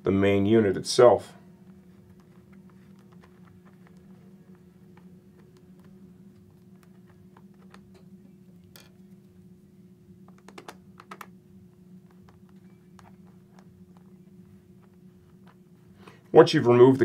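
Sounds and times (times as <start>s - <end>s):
low steady hum: 0.0s - 17.0s
small clicks and taps: 10.3s - 11.3s.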